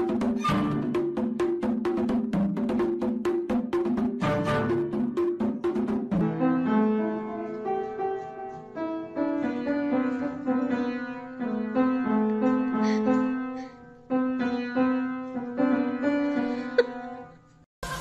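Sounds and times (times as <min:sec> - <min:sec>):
quick clicking percussive beat: 0:00.0 - 0:06.2.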